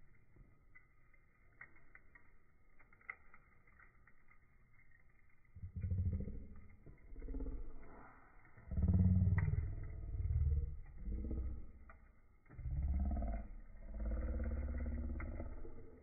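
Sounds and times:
charcoal pops and crackles: 0.0s - 16.0s
low engine rumble: 5.6s - 16.0s.

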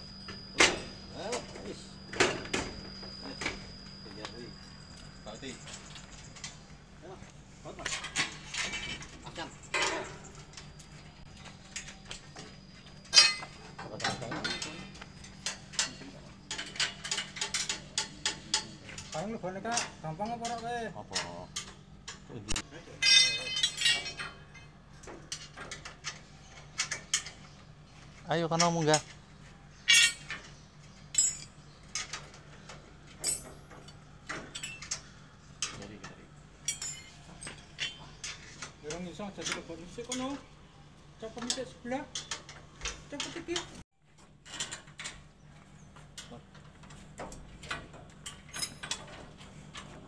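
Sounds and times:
steel tubes knocking and clinking: 13.0s - 26.2s, 31.1s - 32.4s, 36.6s - 40.4s.

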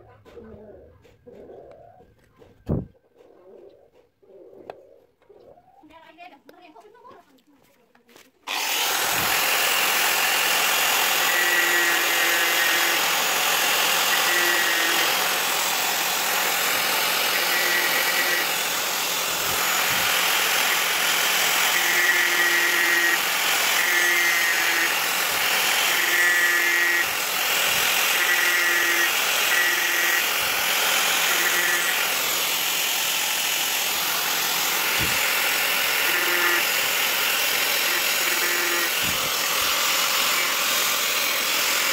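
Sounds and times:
angle grinder sanding wood: 8.5s - 41.9s.

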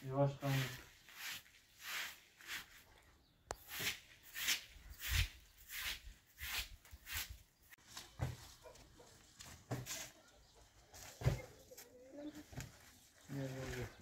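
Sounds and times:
hand broom sweeping carpet: 0.3s - 2.9s, 3.6s - 7.4s.

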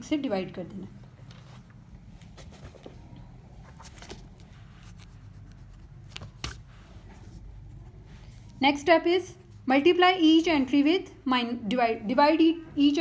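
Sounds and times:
low steady hum: 0.0s - 13.0s
paper rustling: 3.6s - 7.3s.

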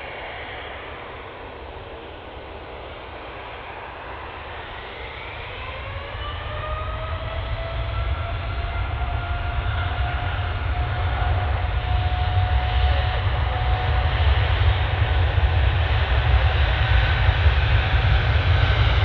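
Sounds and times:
jet engines spooling up: 0.0s - 19.0s.

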